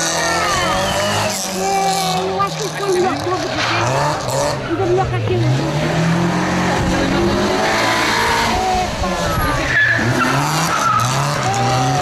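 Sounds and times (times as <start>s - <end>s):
car engine running hard: 0.0s - 12.0s
tyres squealing: 7.7s - 12.0s.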